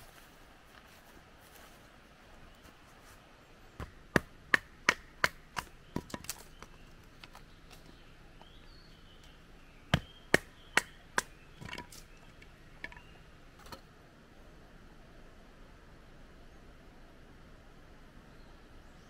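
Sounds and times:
axe chopping firewood: 3.8 - 6.8, 9.9 - 12.2.

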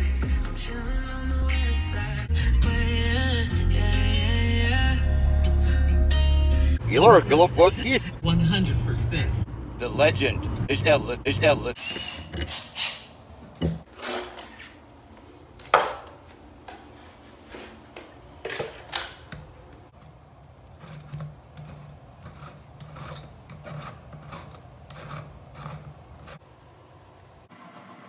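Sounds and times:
light rubbing: 20.7 - 26.4.

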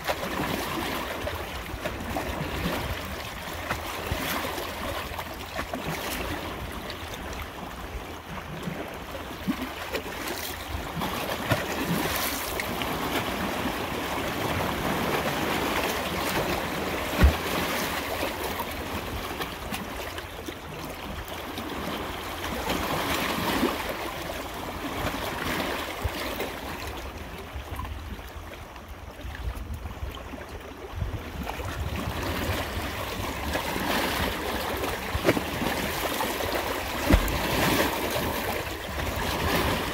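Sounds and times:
water rushing: 8.2 - 27.4, 32.6 - 39.9.

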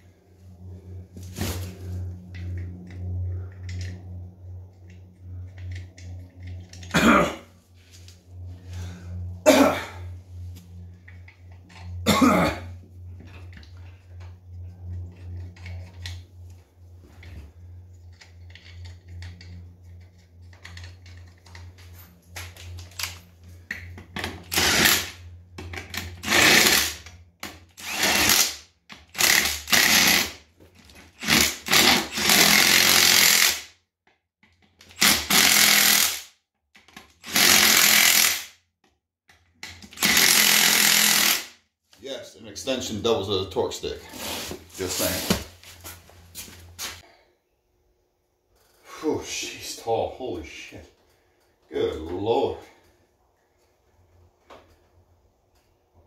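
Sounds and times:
steady low hum: 0.0 - 33.5, 39.4 - 56.0
impact wrench bursts: 24.4 - 25.2, 26.0 - 30.4, 31.1 - 33.7, 34.9 - 36.4, 37.2 - 38.6, 39.8 - 41.6.

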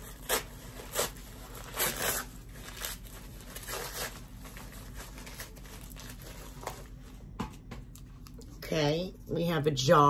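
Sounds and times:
gift wrapping crinkling: 0.0 - 7.3.

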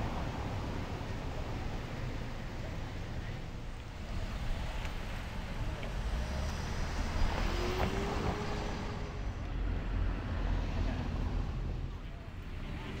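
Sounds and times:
low traffic rumble: 0.0 - 13.0
car driving past: 5.9 - 11.8.

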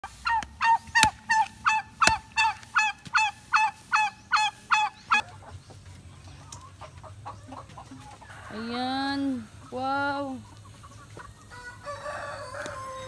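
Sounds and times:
turkey yelping: 0.0 - 5.5.

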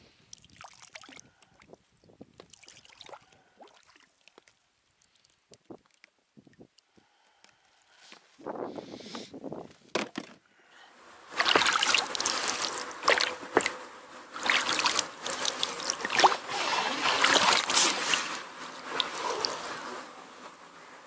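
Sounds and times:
oars splashing in water: 11.3 - 19.9.

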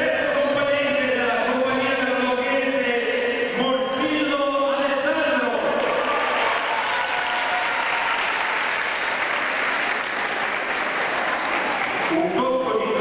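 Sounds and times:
audience applauding: 5.7 - 12.3.

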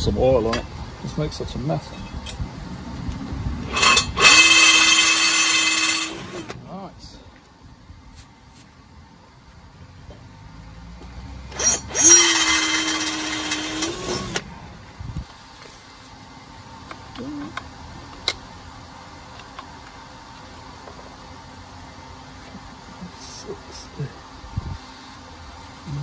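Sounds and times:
cordless drill boring into steel: 3.7 - 6.5, 11.5 - 14.4.

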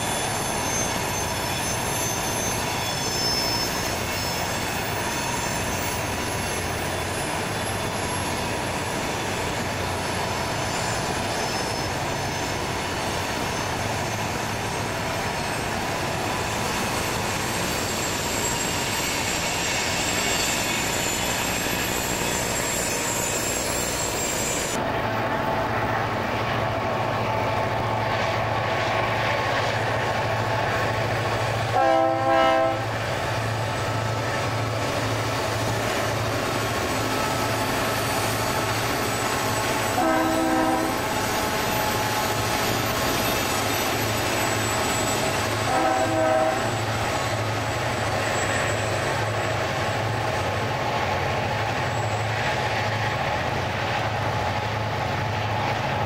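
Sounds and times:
diesel locomotives droning: 0.0 - 56.0
train air horn blasts: 31.7 - 33.0, 39.9 - 41.2, 45.6 - 46.9.

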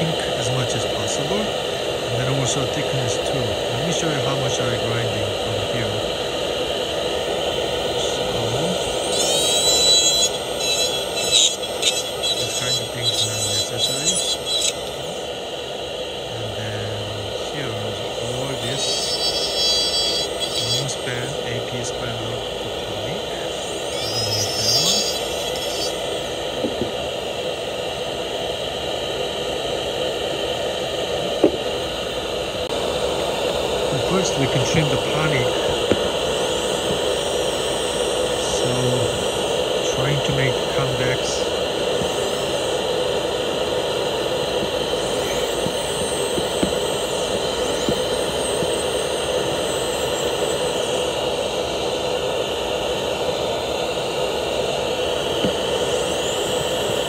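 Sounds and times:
motor whirring: 0.0 - 15.4, 16.3 - 27.2, 33.1 - 52.3
bur grinding acrylic: 8.1 - 15.2, 17.0 - 22.0, 23.1 - 26.0.

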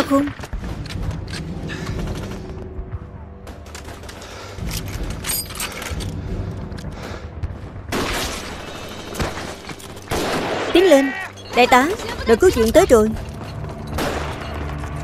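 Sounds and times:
rifle and machine-gun fire: 9.2 - 10.8, 14.0 - 15.0.

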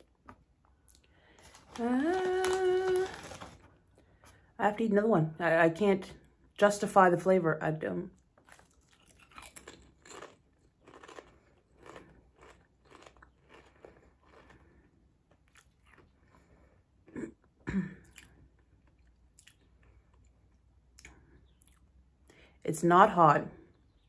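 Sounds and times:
potato chip crunching: 0.0 - 3.7, 8.4 - 16.4.

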